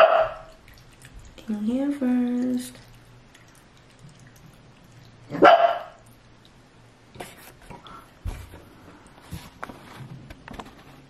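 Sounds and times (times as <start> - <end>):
dog barking: 0.0 - 0.5, 5.3 - 6.0.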